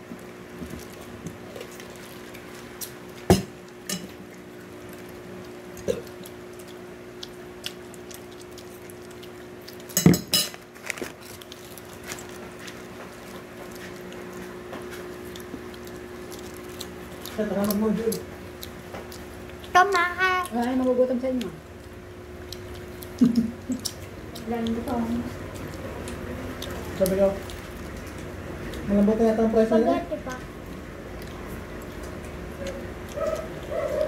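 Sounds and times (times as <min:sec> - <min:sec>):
dishes and cutlery clinking: 0:10.0 - 0:10.6.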